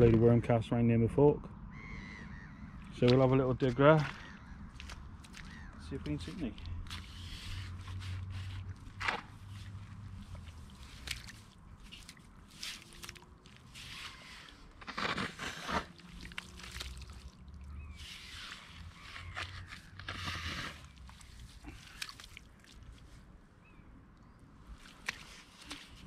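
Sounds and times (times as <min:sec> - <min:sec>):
garden fork digging wet sand: 0:06.9 - 0:22.7.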